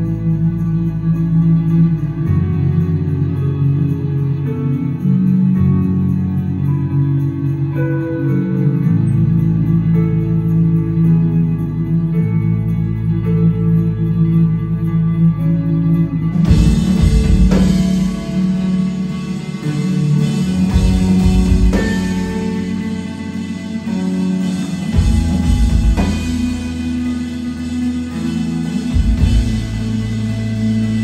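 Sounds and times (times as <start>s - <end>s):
held guitar and bass tones: 0.0s - 31.0s
post-rock band playing live: 0.0s - 31.0s
heavy drum hits: 24.9s - 26.8s.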